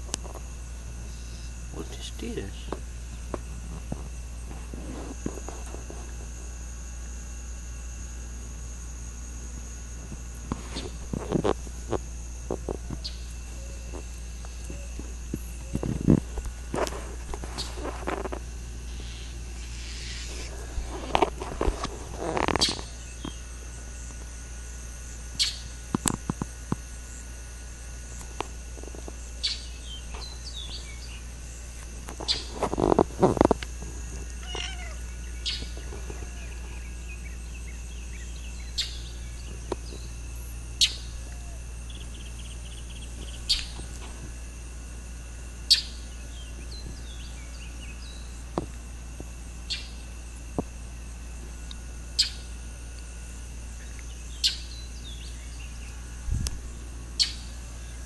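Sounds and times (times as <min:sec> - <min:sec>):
insect chirring: 0:00.0 - 0:58.0
cat meowing: 0:34.4 - 0:35.0.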